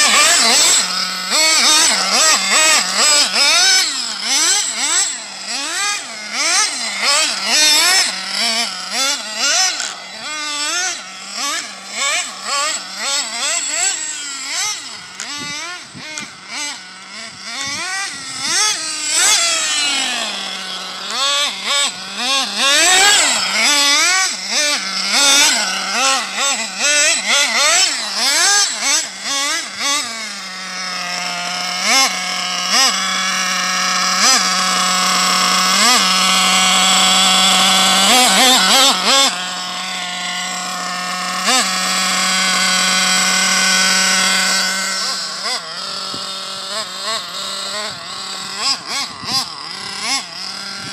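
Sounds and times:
model car engine revving: 0:00.0 - 0:50.9.

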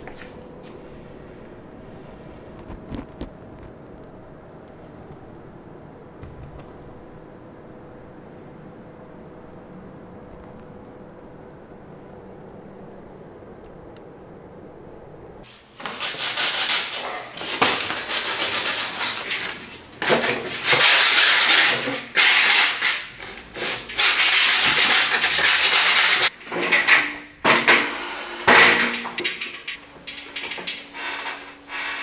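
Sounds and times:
hand sanding a wall: 0:15.6 - 0:19.8, 0:20.5 - 0:26.3.

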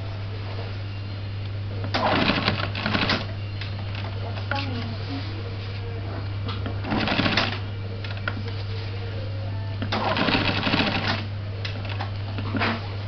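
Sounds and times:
steady low hum: 0:00.0 - 0:13.0
sewing machine stitching: 0:01.9 - 0:03.3, 0:06.8 - 0:07.6, 0:09.9 - 0:12.8.

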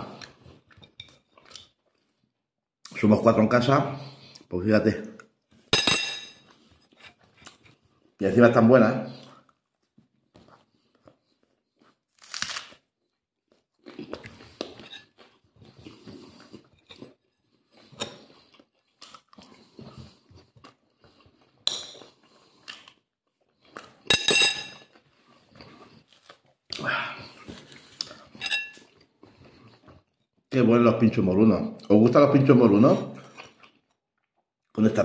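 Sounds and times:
man chewing food: 0:00.0 - 0:02.4, 0:06.4 - 0:08.2, 0:09.2 - 0:24.1, 0:24.7 - 0:30.5, 0:33.2 - 0:34.7.

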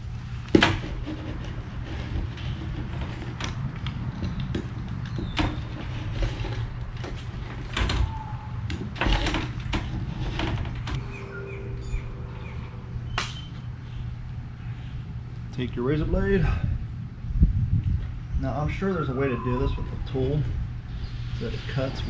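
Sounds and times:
steady low hum: 0:00.0 - 0:22.0
spline roller clicks and creaks: 0:00.8 - 0:11.0.

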